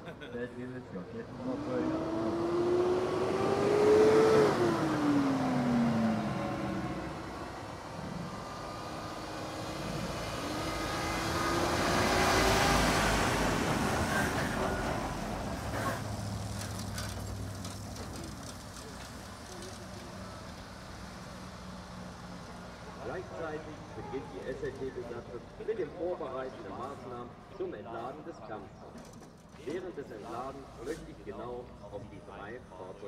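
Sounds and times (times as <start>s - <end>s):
low engine hum: 0.9s - 27.5s
heavy truck engine passing: 1.0s - 28.1s
armoured vehicle whine passing: 1.6s - 16.5s.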